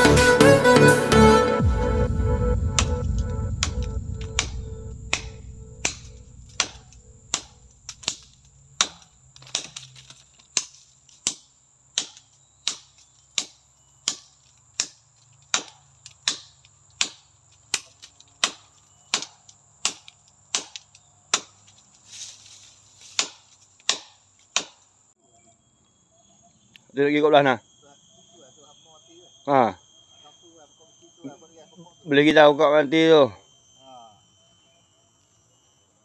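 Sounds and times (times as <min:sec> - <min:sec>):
background music: 0:00.0 - 0:06.0
insect buzz: 0:00.0 - 0:36.0
machete chopping wood: 0:03.6 - 0:21.8, 0:23.0 - 0:24.8.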